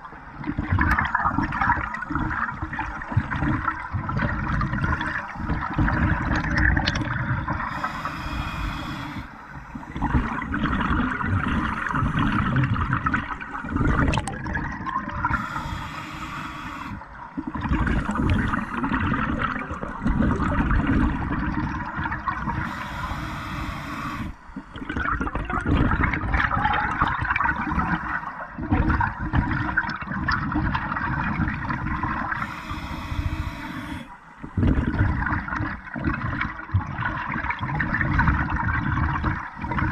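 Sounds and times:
exhaled bubbles rushing: 0:00.0 - 0:07.8, 0:09.8 - 0:15.5, 0:16.7 - 0:22.8, 0:23.9 - 0:32.5, 0:33.9 - 0:39.9
regulator hissing inhale: 0:07.6 - 0:10.1, 0:11.4 - 0:12.6, 0:15.3 - 0:17.2, 0:17.9 - 0:19.0, 0:22.5 - 0:24.9, 0:32.3 - 0:34.4.

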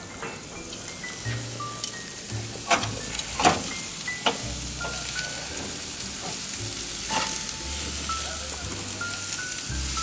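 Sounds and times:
steaks sizzling: 0:00.0 - 0:10.0
tongs clacking on grill grate: 0:02.6 - 0:08.2.

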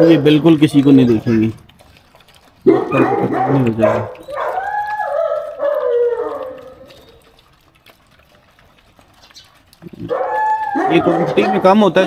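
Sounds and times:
dog whining: 0:02.7 - 0:07.4, 0:09.4 - 0:11.8.

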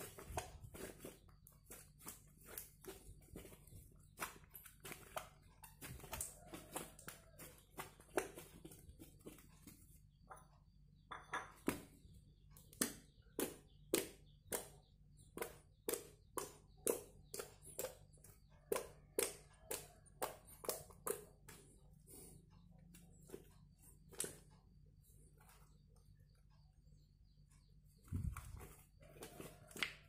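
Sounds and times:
slime squelching: 0:00.0 - 0:09.5.

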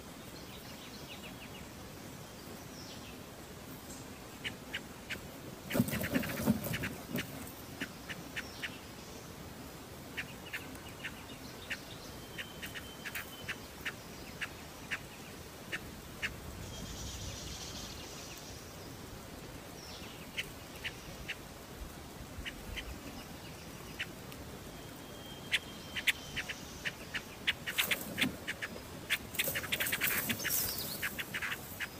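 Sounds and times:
nestlings begging chips: 0:04.4 - 0:07.9, 0:25.5 - 0:31.9.

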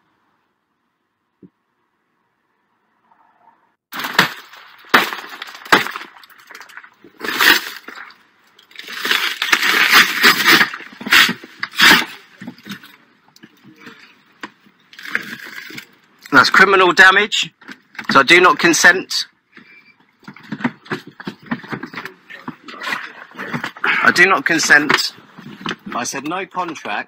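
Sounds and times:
glass breaking and crunching: 0:03.9 - 0:13.1, 0:14.9 - 0:16.0.

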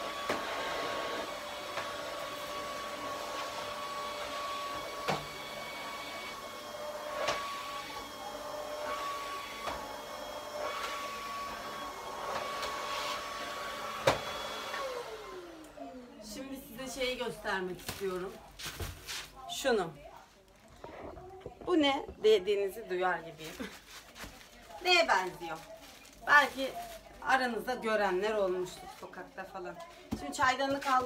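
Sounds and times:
vacuum cleaner running: 0:00.0 - 0:16.1.

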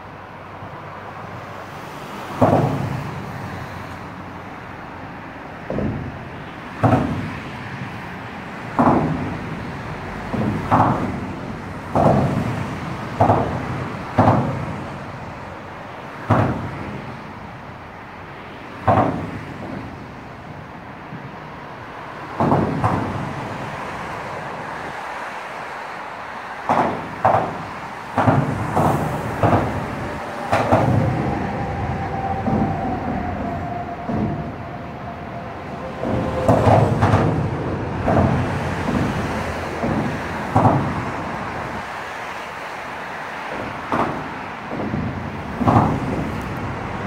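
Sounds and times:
steady traffic rumble: 0:00.0 - 0:47.0
tyres thumping over expansion joint: 0:02.4 - 0:03.2, 0:05.6 - 0:15.2, 0:16.1 - 0:17.4, 0:18.8 - 0:20.1, 0:22.4 - 0:23.7, 0:26.6 - 0:41.9, 0:43.5 - 0:47.0.

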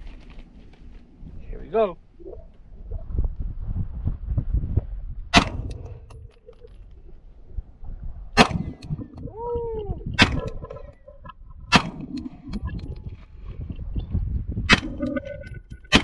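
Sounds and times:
pistol shots: 0:05.4 - 0:05.8.

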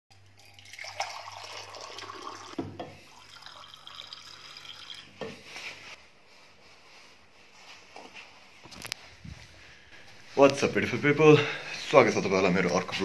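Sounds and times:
water pouring into metal tumbler: 0:00.4 - 0:05.1.

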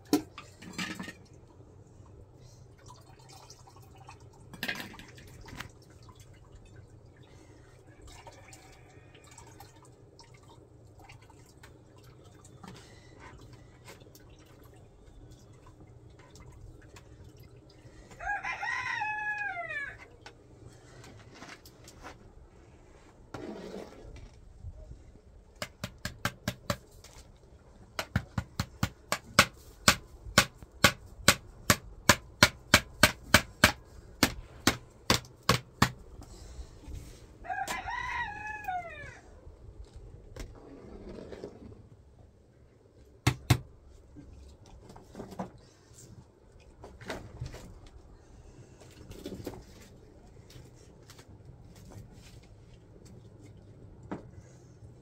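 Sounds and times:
rooster crowing: 0:08.0 - 0:09.5, 0:18.2 - 0:20.1, 0:37.4 - 0:39.3.

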